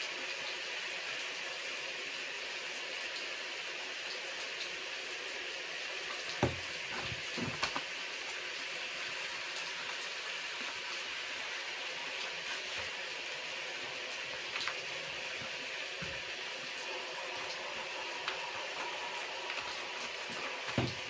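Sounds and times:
rain hissing: 5.6s - 21.0s
soft knocks: 6.4s - 7.8s.

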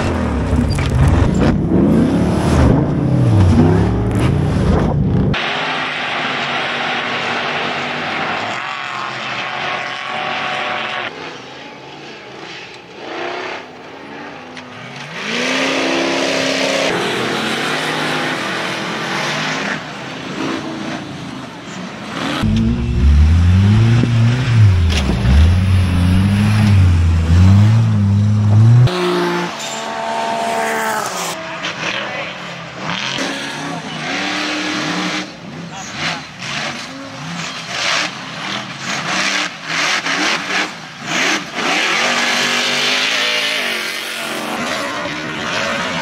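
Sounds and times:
race car engines revving: 0.0s - 46.0s
deep engine revving: 22.2s - 29.2s.

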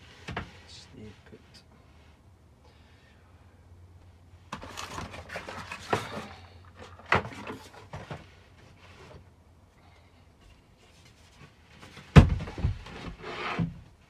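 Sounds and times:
wooden panels knocking and scraping: 4.5s - 9.2s, 11.3s - 13.9s.

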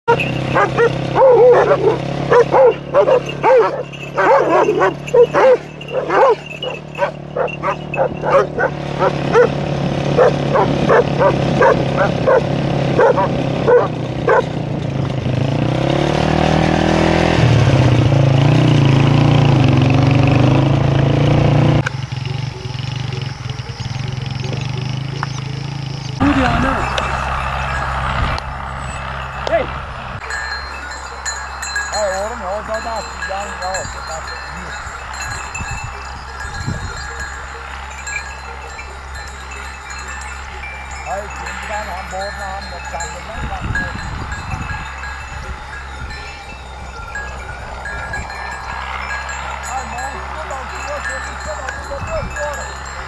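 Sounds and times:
dog barking loudly: 0.1s - 14.6s, 36.9s - 42.1s.

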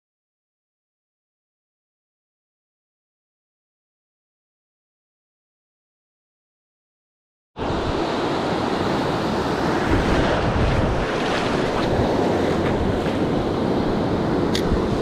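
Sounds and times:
ocean surf breaking: 7.6s - 15.0s
wind buffeting microphone: 8.9s - 15.0s.

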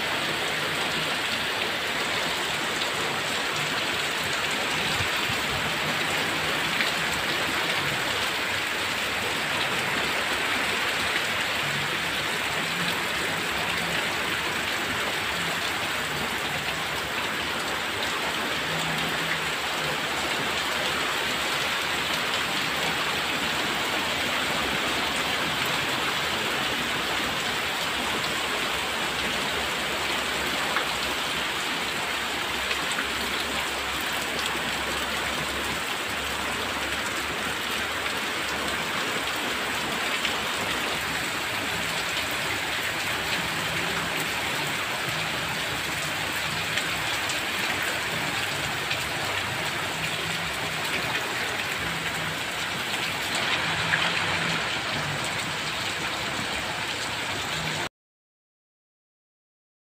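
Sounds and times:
rain pattering on leaves: 0.0s - 57.9s
rain splashing into puddles: 0.0s - 57.9s.

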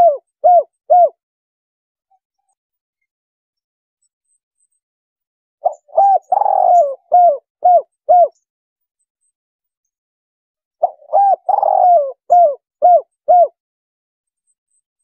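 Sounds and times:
dove cooing: 0.0s - 1.2s, 5.6s - 8.4s, 10.8s - 13.6s.

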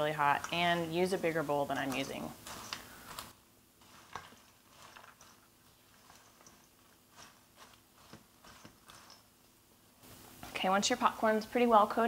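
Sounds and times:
popcorn tossed in steel bowl: 0.0s - 9.4s.

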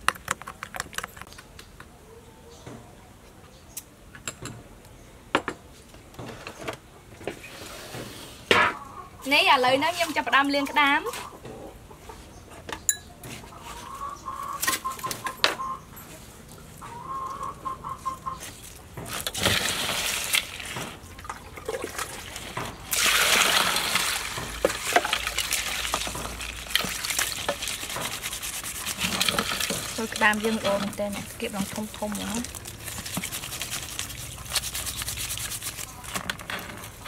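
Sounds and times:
chicken calling: 13.4s - 16.2s, 16.8s - 18.6s
water splashing in a basin: 19.1s - 36.3s.

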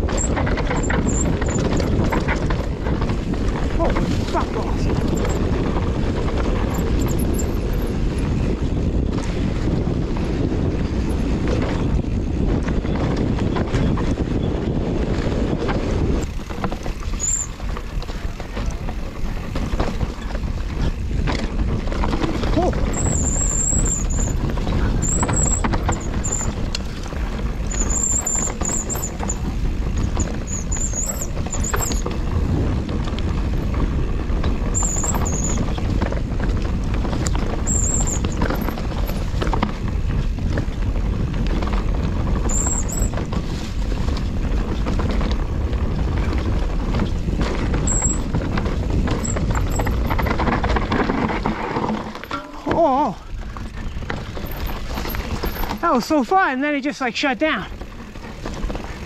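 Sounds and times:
bike tyres rumbling on trail: 0.0s - 59.0s
wind on microphone: 0.0s - 59.0s
high-pitched brake squeals: 17.1s - 17.6s, 27.7s - 29.4s, 37.7s - 38.4s, 42.5s - 43.2s, 47.9s - 48.2s.

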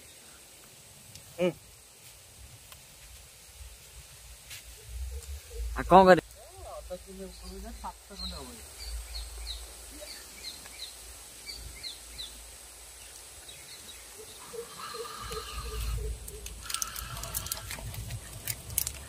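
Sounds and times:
bird chirping: 4.8s - 17.6s
lower pulsing bird call: 13.5s - 16.6s
sharp clicks: 16.2s - 19.0s.

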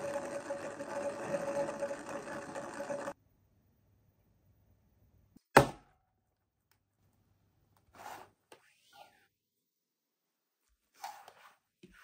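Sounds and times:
spinning toy whirring: 0.0s - 3.2s.

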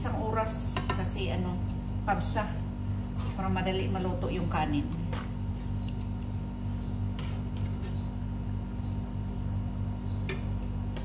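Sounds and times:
metal spoon stirring in pot: 7.1s - 8.1s.

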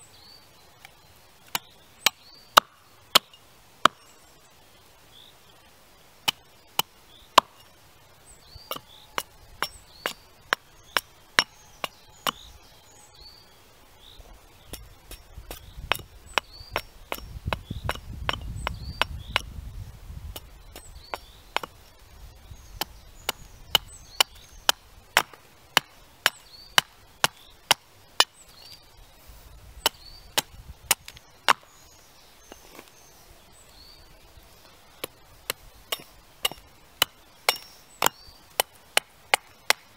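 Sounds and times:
axe chopping wood: 1.5s - 4.0s, 6.2s - 7.6s, 8.6s - 12.5s, 14.7s - 19.5s, 20.3s - 21.8s, 22.7s - 28.4s, 29.8s - 31.7s, 35.0s - 39.9s.

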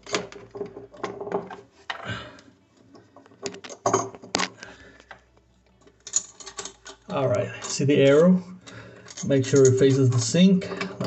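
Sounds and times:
metal nut and washer clinking: 5.9s - 8.3s, 9.0s - 11.0s.

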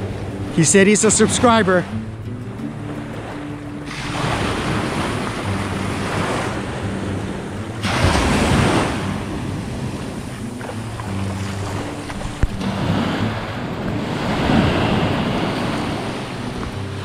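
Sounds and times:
sea water washing: 0.0s - 17.0s
wind buffeting microphone: 0.0s - 17.0s.

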